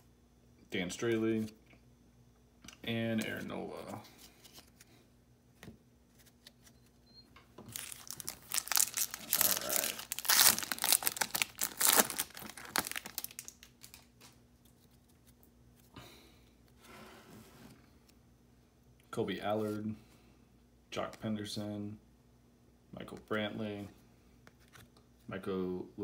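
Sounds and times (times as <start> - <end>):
foil wrapper crinkling and tearing: 7.7 - 14.9.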